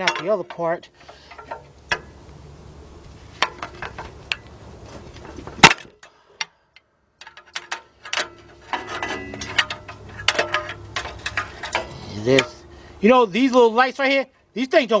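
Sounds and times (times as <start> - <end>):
hand tools clinking on metal: 0.0 - 2.1, 7.2 - 12.9
sharp metal clank: 7.2 - 12.9.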